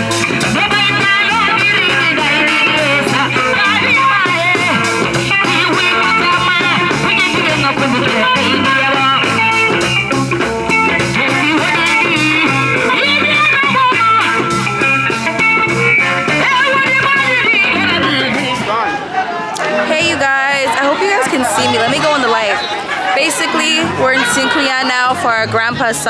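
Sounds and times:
electric guitar: 0:00.0 - 0:18.8
bass guitar: 0:00.0 - 0:18.9, 0:19.6 - 0:23.0
woman singing into microphone: 0:00.4 - 0:09.4, 0:11.2 - 0:14.4, 0:16.4 - 0:18.6, 0:23.2 - 0:26.0.

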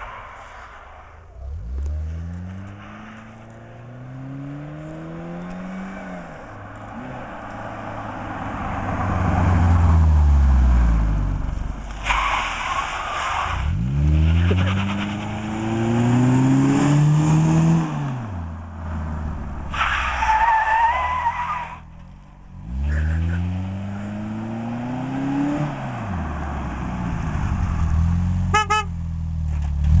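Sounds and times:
car passing by: 0:00.0 - 0:20.5
tires squealing: 0:00.0 - 0:28.9
car engine revving: 0:00.0 - 0:30.0.

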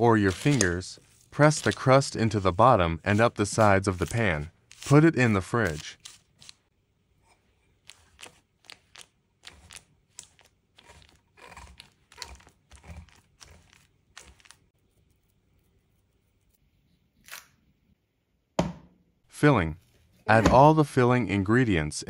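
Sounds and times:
soft crunching pats on crust: 0:00.0 - 0:06.6, 0:07.6 - 0:16.6.

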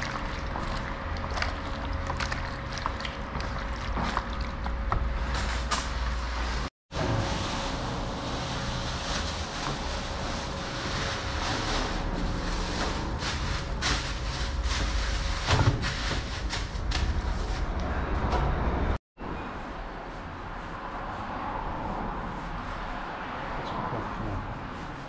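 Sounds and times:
road traffic: 0:00.8 - 0:25.0.

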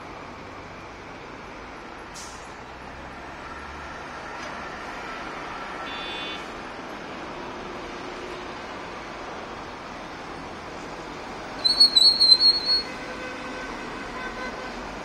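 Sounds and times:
passing vehicles and tyres: 0:00.0 - 0:15.0
short hiss: 0:02.1 - 0:02.6.

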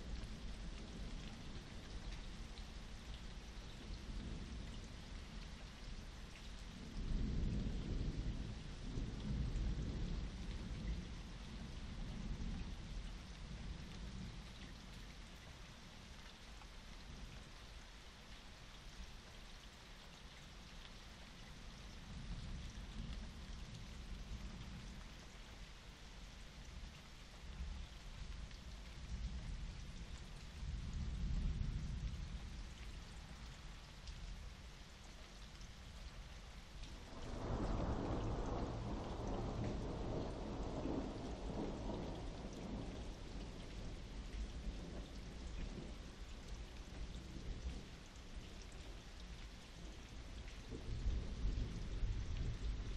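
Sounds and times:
steady rain: 0:00.0 - 0:52.9
thunder rumbling: 0:37.0 - 0:46.0.

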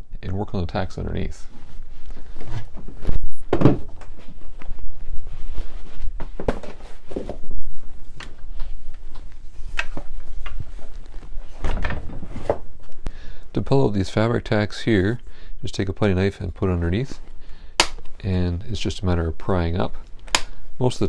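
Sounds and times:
cloth rustling: 0:01.4 - 0:03.3, 0:04.0 - 0:13.0
wooden chair knocks and thunks: 0:03.5 - 0:04.0.

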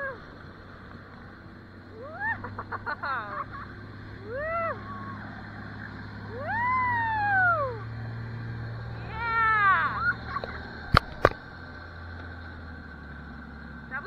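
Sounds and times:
low boat engine hum: 0:00.0 - 0:14.0
high voices squealing and whooping: 0:02.0 - 0:02.6, 0:04.2 - 0:05.6, 0:06.2 - 0:08.0, 0:09.0 - 0:10.8.

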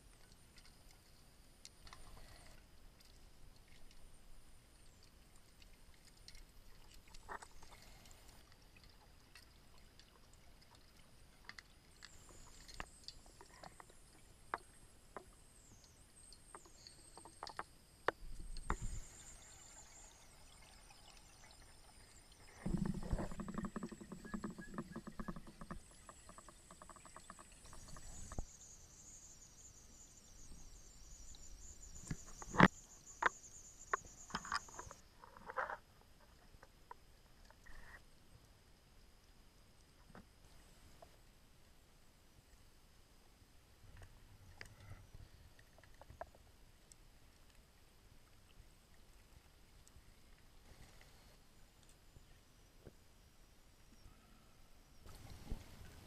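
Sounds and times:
faint underwater clicks and knocks: 0:00.0 - 0:28.6, 0:30.4 - 0:38.5, 0:39.2 - 0:41.3, 0:43.8 - 0:53.1, 0:55.0 - 0:56.0
rapid underwater bubbling: 0:18.5 - 0:28.4.

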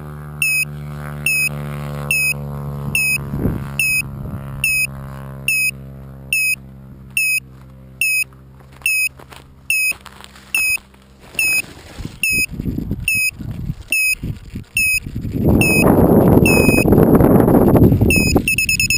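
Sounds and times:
low hum: 0:00.0 - 0:18.9
short high electronic beeps: 0:00.4 - 0:00.7, 0:01.3 - 0:01.5, 0:02.1 - 0:02.4, 0:03.0 - 0:03.2, 0:03.8 - 0:04.0, 0:04.6 - 0:04.9, 0:05.5 - 0:05.7, 0:06.4 - 0:06.6, 0:07.2 - 0:07.4, 0:08.0 - 0:08.3, 0:08.9 - 0:09.1, 0:09.7 - 0:10.0, 0:12.2 - 0:12.5, 0:13.1 - 0:13.3, 0:13.9 - 0:14.2, 0:14.8 - 0:15.0, 0:15.6 - 0:16.9, 0:18.1 - 0:18.9
footsteps crunching through dry grass: 0:07.0 - 0:16.4
rustling and handling noise: 0:07.5 - 0:15.6.

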